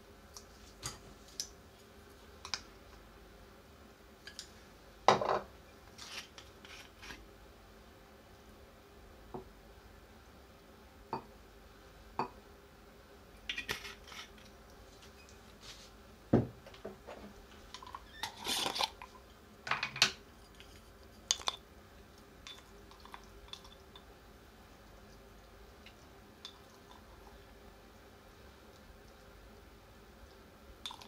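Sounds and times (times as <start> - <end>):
glass bottle set down on table: 5.1 - 5.5, 16.3 - 16.6
tableware clinking and knocking: 5.1 - 5.5.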